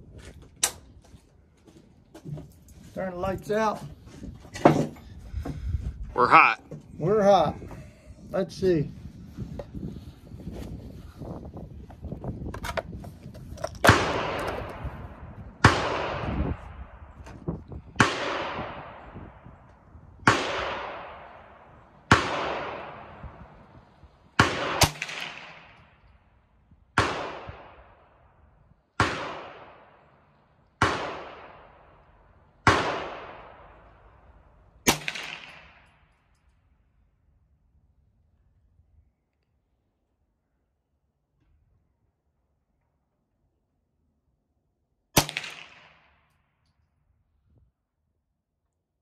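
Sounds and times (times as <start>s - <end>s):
rifle shots echoing: 13.9s - 16.7s, 18.0s - 19.2s, 20.2s - 23.8s, 24.4s - 26.0s, 27.0s - 28.1s, 29.0s - 34.2s, 34.8s - 36.1s, 45.2s - 46.3s.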